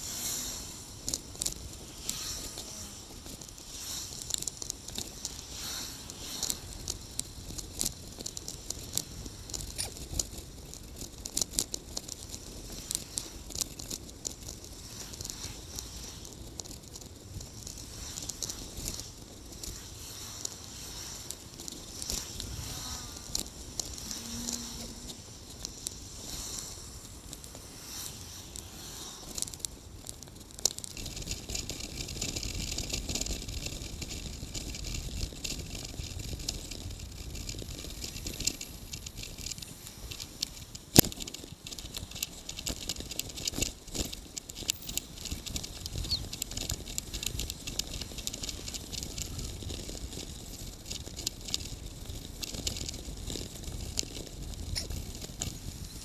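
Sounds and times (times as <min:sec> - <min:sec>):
rattling bicycle road noise: 0:00.0 - 0:56.0
low rumble: 0:14.3 - 0:30.6.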